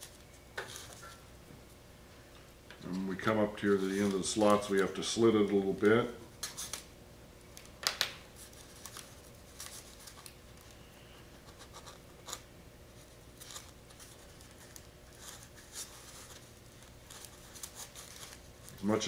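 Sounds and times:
tape scratching and crinkling: 0:07.5 - 0:10.8, 0:11.4 - 0:19.0.

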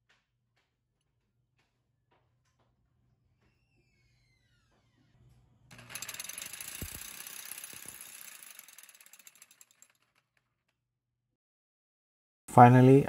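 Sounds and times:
fast metallic rattle: 0:05.7 - 0:10.5.

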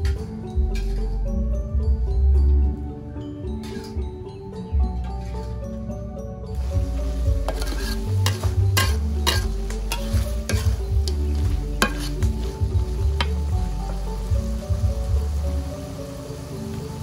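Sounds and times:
food sizzling in a pan: 0:06.5 - 0:17.0
metal spatula scraping a wok: 0:06.8 - 0:13.3.

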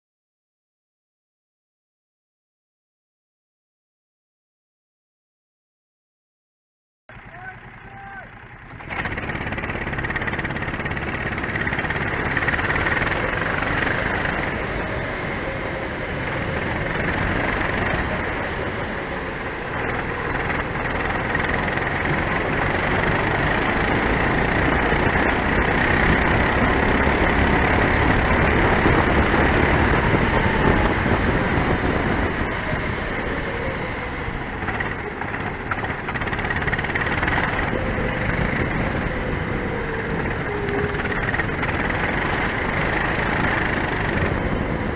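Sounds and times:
kart engine revving: 0:07.1 - 0:44.9
rushing wind noise: 0:09.0 - 0:44.9.

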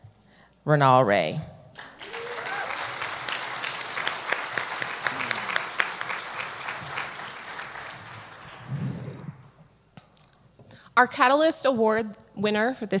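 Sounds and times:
audience applauding: 0:01.8 - 0:09.6.

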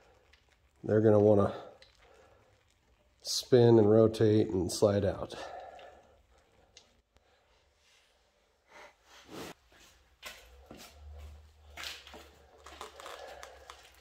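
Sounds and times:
gloves rustling: 0:09.1 - 0:14.0.

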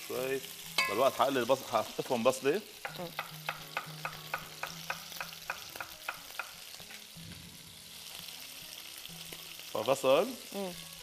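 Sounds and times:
meat sizzling in hot oil: 0:00.0 - 0:11.0
sharp regular taps: 0:02.8 - 0:06.6.

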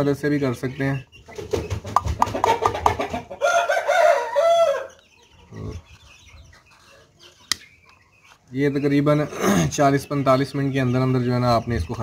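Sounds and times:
chicken clucking: 0:00.0 - 0:12.0
rooster crowing: 0:03.4 - 0:05.0.

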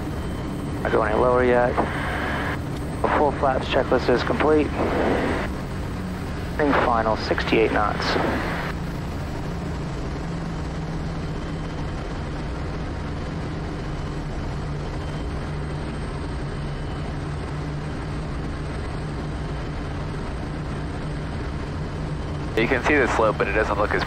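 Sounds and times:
turboprop engine droning: 0:00.0 - 0:24.0.

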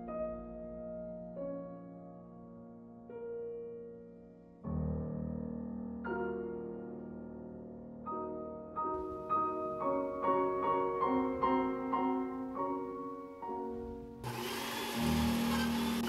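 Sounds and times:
piano music: 0:00.0 - 0:16.0
blender motor whirring: 0:14.2 - 0:16.0.

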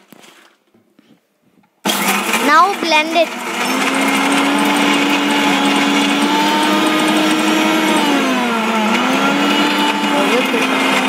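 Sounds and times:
mixer grinder motor whine: 0:01.9 - 0:11.0.

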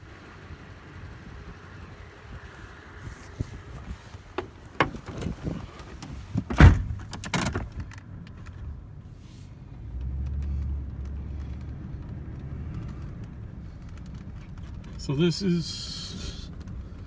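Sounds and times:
low engine rumble: 0:00.0 - 0:17.0
vehicle door shutting: 0:04.1 - 0:08.0.

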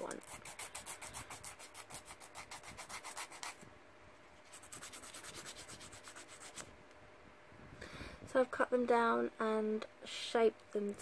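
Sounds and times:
nail file filing nails: 0:00.0 - 0:03.6, 0:04.5 - 0:06.6.

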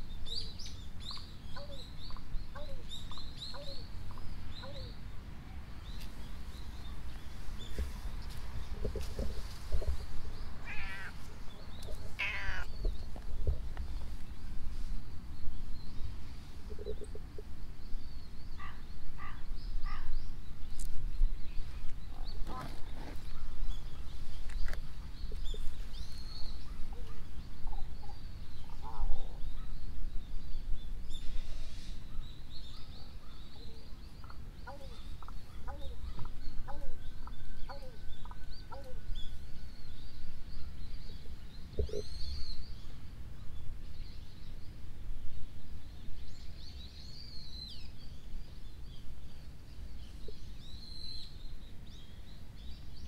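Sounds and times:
cat meowing: 0:10.6 - 0:11.2, 0:12.2 - 0:12.7.

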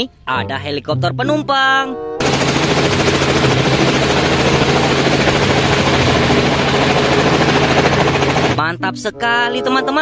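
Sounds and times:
helicopter engine hum: 0:02.2 - 0:08.6
helicopter rotor chop: 0:02.2 - 0:08.6.

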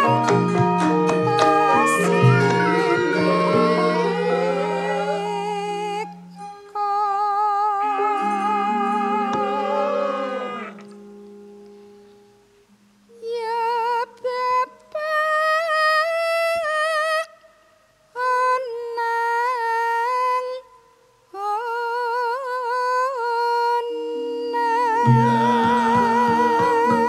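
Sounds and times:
woman singing solo: 0:00.0 - 0:06.1, 0:06.8 - 0:10.8, 0:21.4 - 0:27.0
gamelan ensemble playing: 0:00.0 - 0:06.8.

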